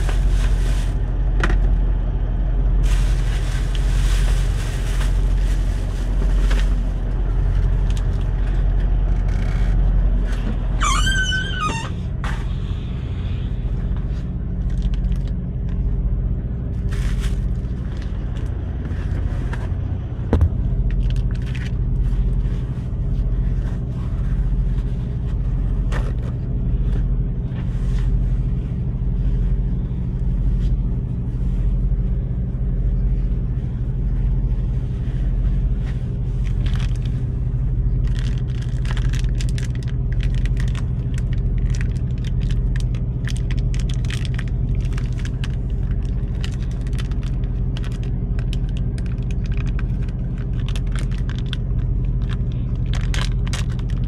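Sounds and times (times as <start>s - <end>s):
plastic food wrapper crinkling: 0.0s - 1.1s, 2.8s - 9.2s, 14.5s - 16.0s, 16.8s - 18.6s, 20.8s - 22.6s, 36.1s - 54.0s
diesel engine idling: 0.0s - 54.0s.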